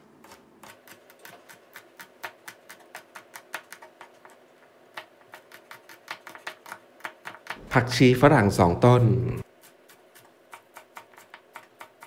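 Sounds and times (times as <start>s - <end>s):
knife tapping on cutting board: 10.5s - 12.0s.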